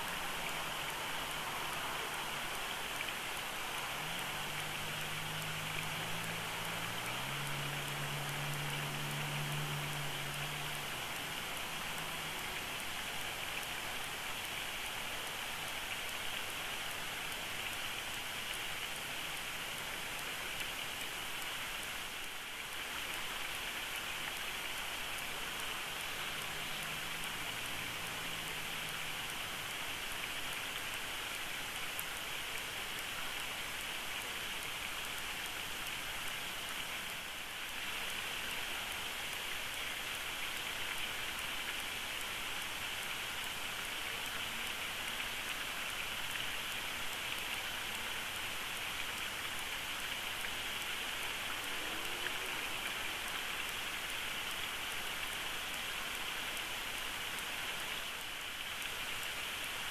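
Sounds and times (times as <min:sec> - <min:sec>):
steady outdoor hiss: 0:00.0 - 0:59.9.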